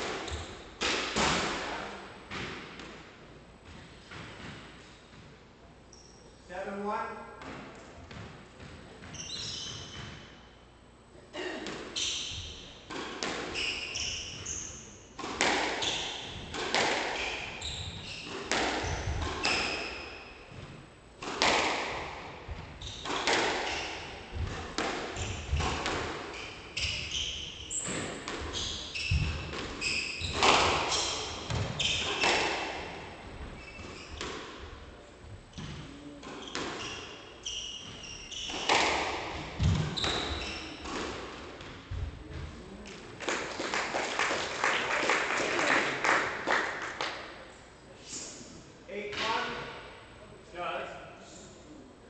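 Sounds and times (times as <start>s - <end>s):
squash ball hitting racket and walls: 0.0s - 5.4s, 7.4s - 10.6s, 11.4s - 43.9s
shoes squeaking on wooden floor: 9.0s - 10.3s, 25.2s - 32.5s, 33.4s - 34.3s, 35.5s - 40.9s.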